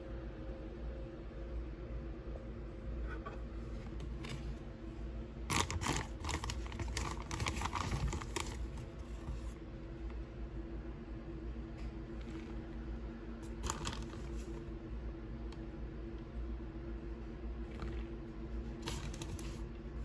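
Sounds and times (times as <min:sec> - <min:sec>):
steady low hum: 0:00.0 - 0:20.0
packaging crinkling and clicking: 0:05.5 - 0:08.9, 0:13.4 - 0:14.5, 0:18.8 - 0:19.6.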